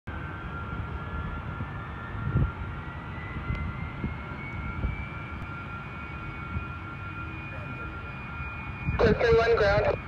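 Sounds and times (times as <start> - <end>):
distant jet engines running: 0.1 - 10.0.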